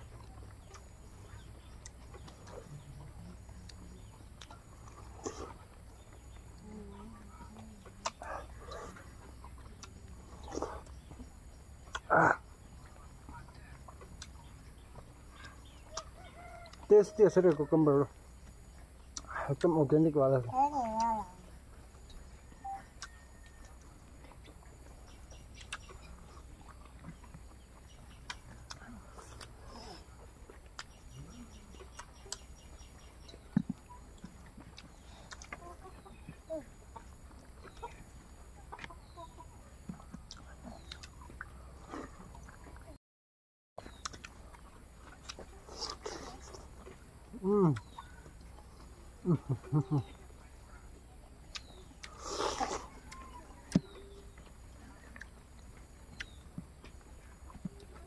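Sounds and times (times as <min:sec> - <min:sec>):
chewing and lip smacks: 0:00.0 - 0:06.7, 0:07.4 - 0:16.9, 0:18.3 - 0:19.7, 0:20.8 - 0:39.2, 0:39.8 - 0:42.9, 0:43.8 - 0:58.0
low steady hum: 0:00.0 - 0:43.0.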